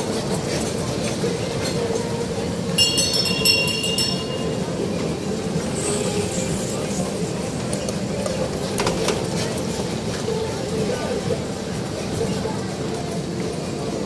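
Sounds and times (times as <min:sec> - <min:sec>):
carousel humming: 0:00.0 - 0:14.0
market noise: 0:00.0 - 0:14.0
bell ringing rapidly: 0:02.8 - 0:04.6.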